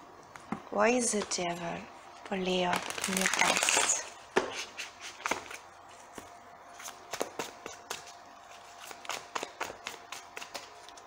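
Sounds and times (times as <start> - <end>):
cards being shuffled: 2.8 - 11.0.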